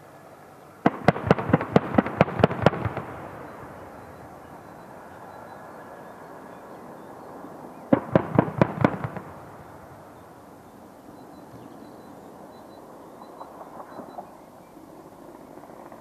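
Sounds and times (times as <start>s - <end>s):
distant cannon fire bangs: 0.8s - 4.9s, 7.9s - 10.7s.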